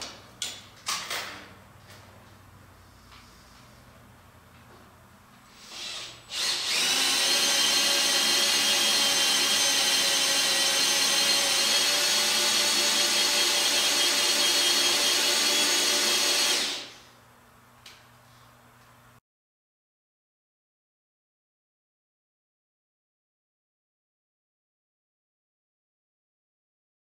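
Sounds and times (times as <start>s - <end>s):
electric drill whining: 5.6s - 17.0s.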